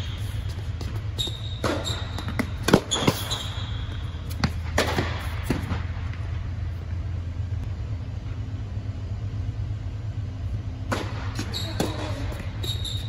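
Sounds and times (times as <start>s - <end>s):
short high squeak: 1.2s - 2.3s, 12.6s - 13.0s
tennis ball struck: 1.6s - 3.5s, 4.3s - 6.2s, 10.8s - 12.2s.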